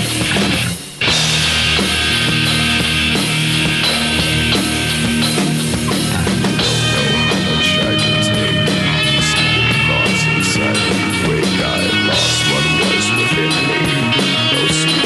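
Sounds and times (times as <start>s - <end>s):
loud rock music: 0.0s - 15.0s.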